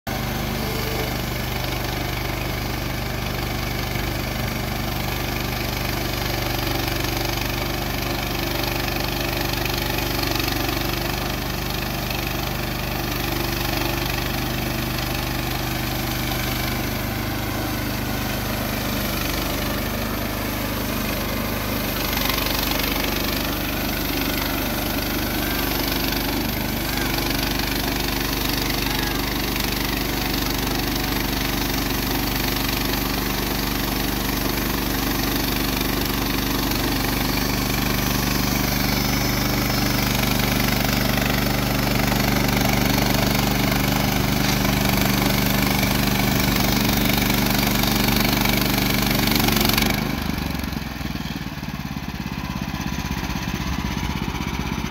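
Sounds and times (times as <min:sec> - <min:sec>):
band saw blade cutting log: 0:00.1 - 0:52.3
gasoline engine running: 0:00.1 - 0:54.9.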